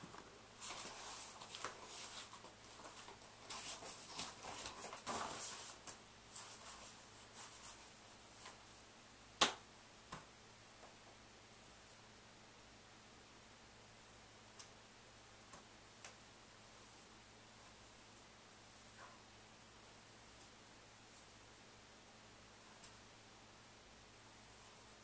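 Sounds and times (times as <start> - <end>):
clothing rustle: 0.0 - 8.6
sharp hand smack: 9.4 - 10.2.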